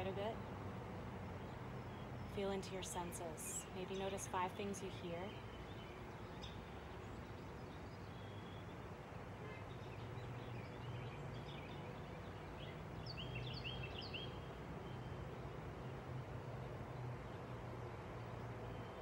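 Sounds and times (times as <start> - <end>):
bird chirps: 9.9 - 15.1.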